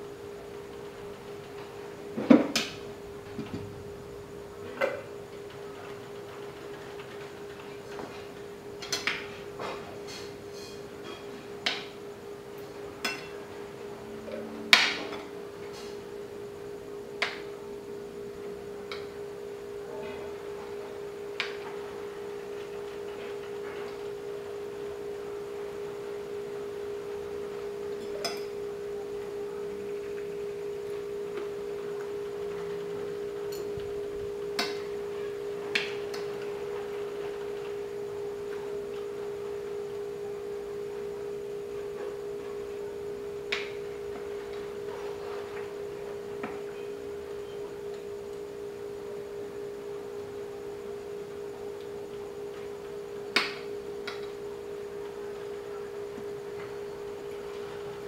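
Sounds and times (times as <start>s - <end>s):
steady tone: 13.0s - 16.9s.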